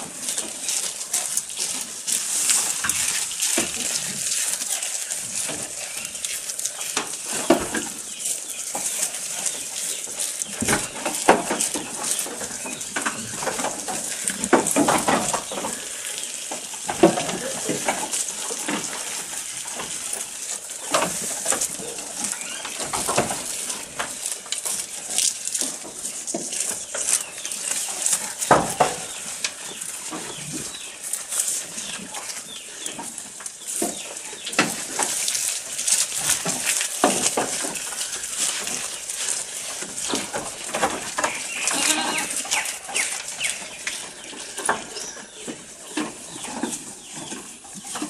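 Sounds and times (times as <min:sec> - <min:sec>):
goats chewing fodder: 0:00.0 - 0:48.0
leaves rustling: 0:00.0 - 0:48.0.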